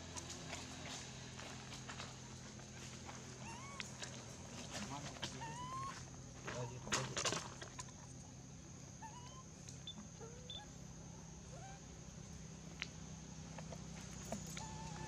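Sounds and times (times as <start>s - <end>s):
insect drone: 0.0s - 15.0s
short rising animal calls: 3.4s - 4.0s.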